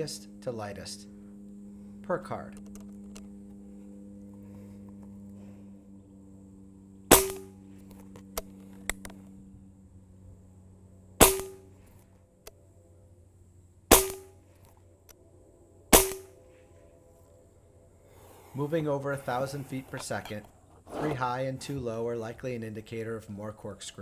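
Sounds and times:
air rifle shots: 0:07.1 - 0:07.6, 0:11.2 - 0:11.8, 0:13.9 - 0:14.4, 0:15.9 - 0:16.4.

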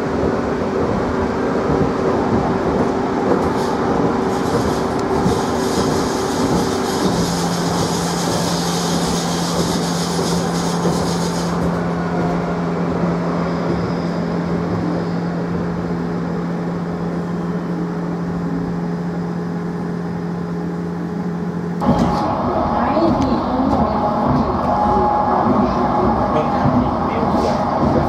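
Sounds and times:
tram rumbling in motion: 0:00.0 - 0:28.0
wheels hissing on rail: 0:02.5 - 0:16.3.

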